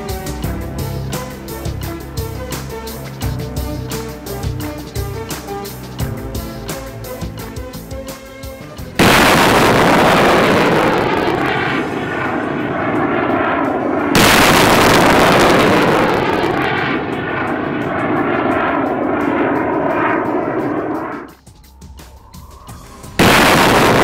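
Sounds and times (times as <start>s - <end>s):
missile launch blast: 9.0s - 20.9s, 23.2s - 24.0s.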